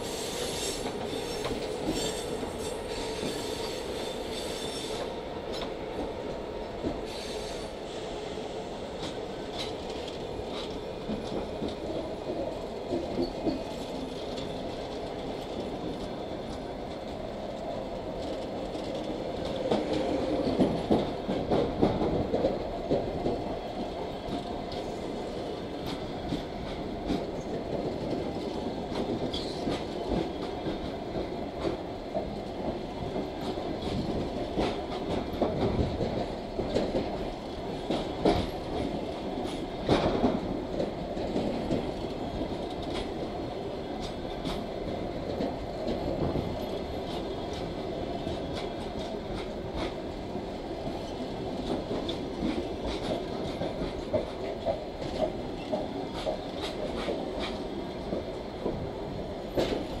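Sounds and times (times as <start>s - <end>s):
train rolling rumble: 0.0s - 60.0s
train wheels clicking over rail joints: 0.1s - 6.1s, 9.0s - 60.0s.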